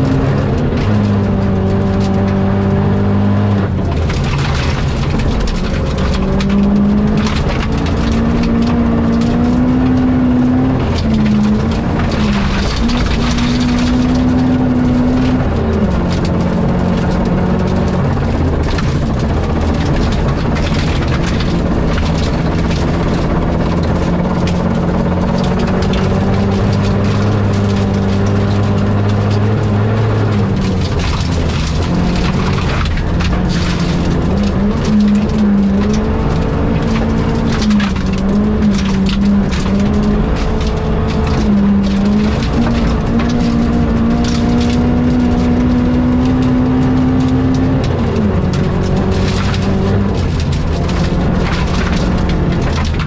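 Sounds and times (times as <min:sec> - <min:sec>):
clicks and knocks: 0:00.0 - 0:53.0
rally car engine revving: 0:00.0 - 0:53.0
tyre and road noise: 0:00.0 - 0:53.0.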